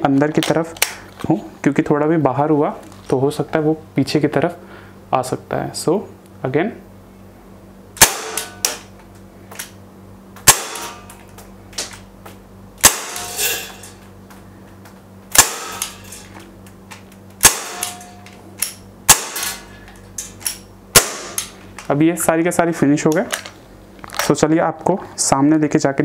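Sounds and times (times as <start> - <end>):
bb revolver shots cracking: 8.0 - 8.9, 10.4 - 11.2, 12.8 - 13.7, 15.3 - 16.1, 17.4 - 19.7, 20.3 - 21.6.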